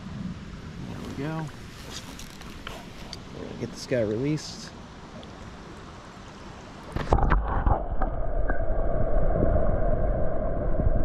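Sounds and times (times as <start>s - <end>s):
stream water: 0.4s - 8.2s.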